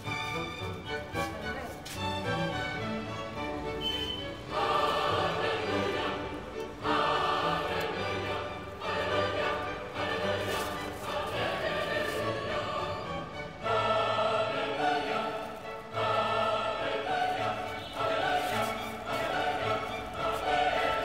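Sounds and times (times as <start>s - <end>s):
orchestral backing: 0.0s - 21.0s
choir singing held chords: 4.2s - 21.0s.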